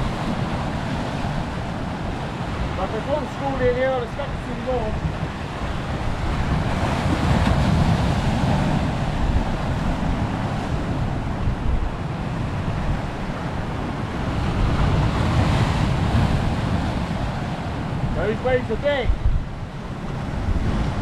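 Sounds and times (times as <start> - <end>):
surf washing over rocks: 0.0 - 21.0
wind buffeting microphone: 0.0 - 21.0.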